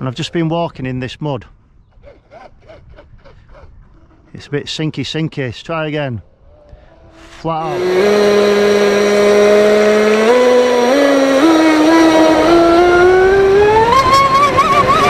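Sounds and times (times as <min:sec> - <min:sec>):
electric boat motor whining: 0:07.6 - 0:15.0.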